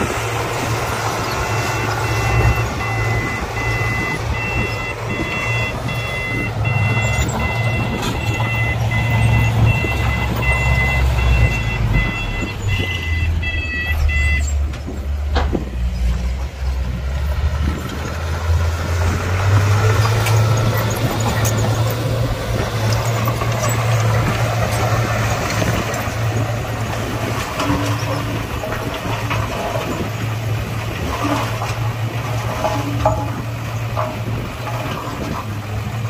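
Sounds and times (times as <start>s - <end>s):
diesel machinery engine drone: 0.0s - 36.0s
reversing alarm beeping: 1.2s - 14.7s.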